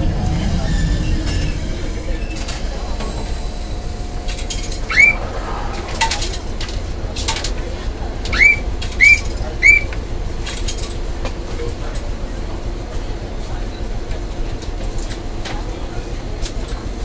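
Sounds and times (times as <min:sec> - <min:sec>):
low steady tram hum: 0:00.0 - 0:17.0
bird calls sweeping up: 0:04.8 - 0:06.0, 0:08.4 - 0:09.9.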